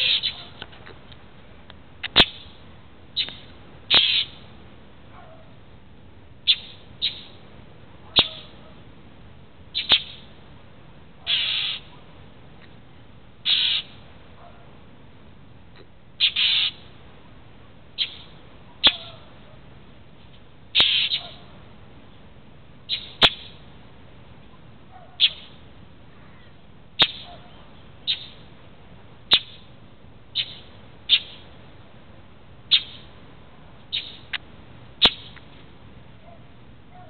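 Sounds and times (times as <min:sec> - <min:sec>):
mockingbird harsh calls: 0:00.0 - 0:00.6, 0:03.2 - 0:04.4, 0:06.4 - 0:07.4, 0:08.1 - 0:08.7, 0:09.7 - 0:10.3, 0:11.2 - 0:12.0, 0:13.4 - 0:14.0, 0:16.2 - 0:16.9, 0:18.0 - 0:19.5, 0:20.7 - 0:21.5, 0:22.9 - 0:23.6, 0:24.9 - 0:28.4, 0:29.3 - 0:29.7, 0:30.3 - 0:31.5, 0:32.7 - 0:33.1, 0:33.9 - 0:34.4, 0:35.0 - 0:35.4.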